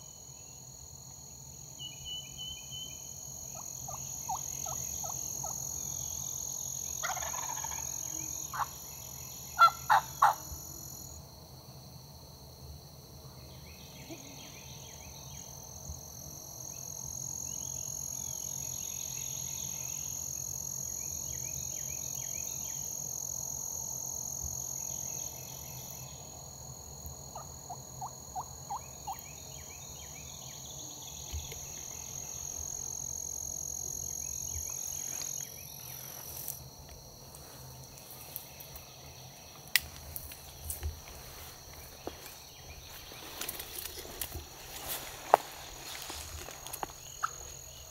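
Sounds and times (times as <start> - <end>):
insect chorus: 0.0 - 47.9
turkey gobbling: 7.0 - 7.9, 9.6 - 10.4, 27.3 - 29.2
hen turkey yelps: 9.6 - 10.4.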